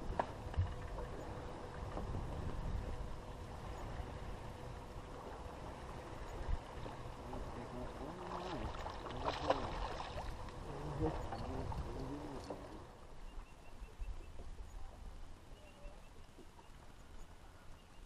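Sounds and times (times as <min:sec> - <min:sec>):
water against a boat: 0:00.0 - 0:18.0
wind: 0:00.0 - 0:18.0
fish splashing at the surface: 0:08.1 - 0:10.4.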